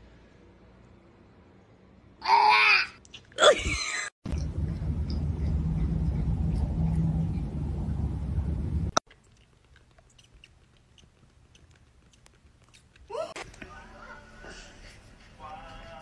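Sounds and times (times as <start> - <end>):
steady low rumble: 4.2 - 9.0
kitten suckling clicks: 9.1 - 13.1.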